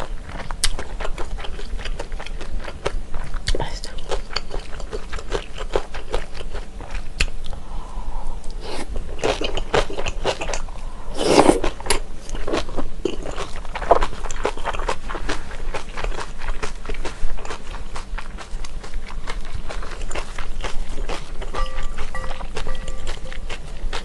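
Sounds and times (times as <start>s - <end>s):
wet chewing and biting: 11.4s - 24.0s.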